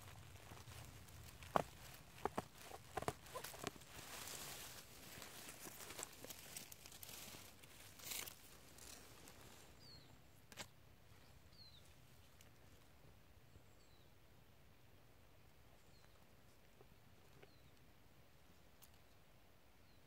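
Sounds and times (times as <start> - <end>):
grass and dry leaves rustling: 0.0 - 13.1.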